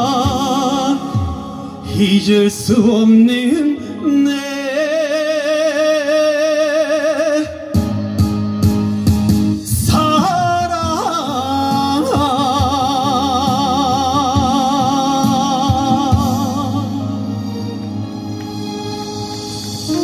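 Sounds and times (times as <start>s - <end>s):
backing track with drum beat: 0.0s - 2.5s, 7.4s - 20.0s
man singing with vibrato: 0.0s - 8.2s, 9.6s - 17.8s.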